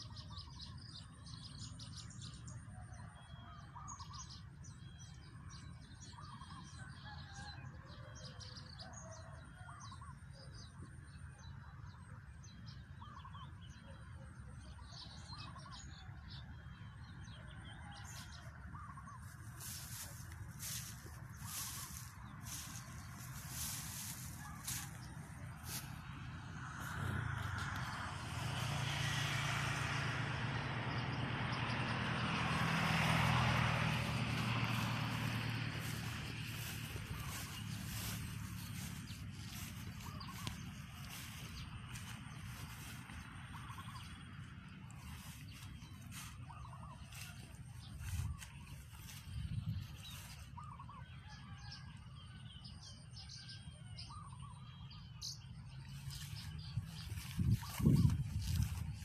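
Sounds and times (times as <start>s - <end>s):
passing vehicle engine drone: 14.0s - 59.0s
birds chirping and calling: 18.8s - 26.0s, 34.1s - 51.6s, 54.0s - 59.0s
steady low rumble: 18.8s - 29.9s, 33.5s - 51.0s, 55.6s - 59.0s.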